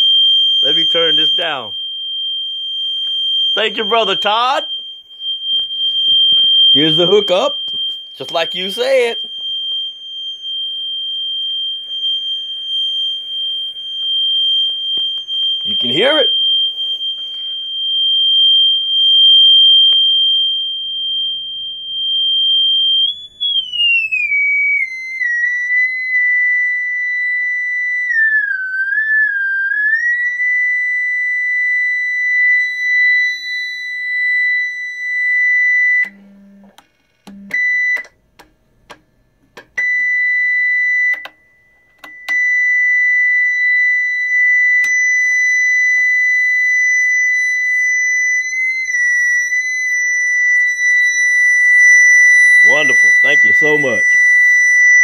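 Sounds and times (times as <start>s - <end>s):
sine test tone whistle: 0.0s - 38.2s, 39.8s - 55.0s.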